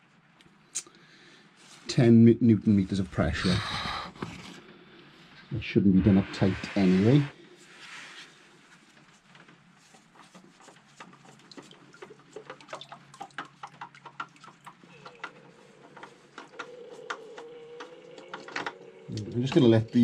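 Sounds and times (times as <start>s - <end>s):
oil dripping into oil: 9.9s - 18.8s.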